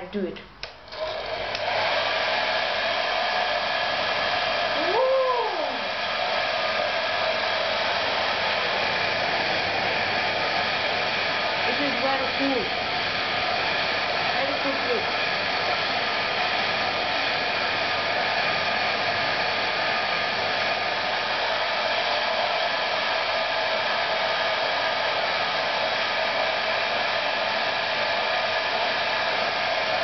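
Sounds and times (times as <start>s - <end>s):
hair dryer running: 0.6s - 30.0s.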